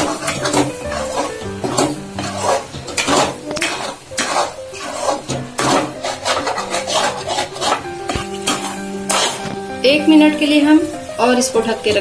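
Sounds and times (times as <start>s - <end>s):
metal spatula scraping a pan: 0.0s - 10.8s.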